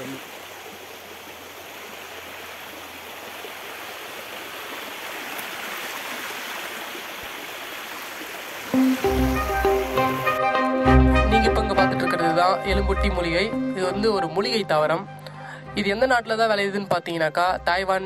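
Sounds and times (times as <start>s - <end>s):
stream splashing over rocks: 0.0s - 10.3s
music: 8.8s - 18.0s.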